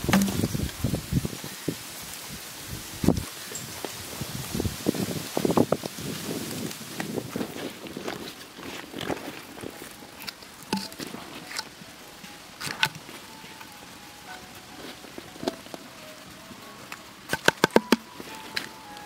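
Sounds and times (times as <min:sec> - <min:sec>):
hands mixing fish and leaves: 0:03.6 - 0:19.0.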